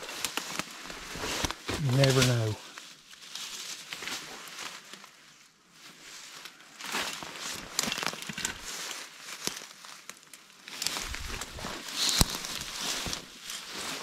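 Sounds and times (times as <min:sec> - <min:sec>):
rustling through dense weeds: 0:00.0 - 0:14.0
stems snapping: 0:01.3 - 0:02.5, 0:10.2 - 0:13.3.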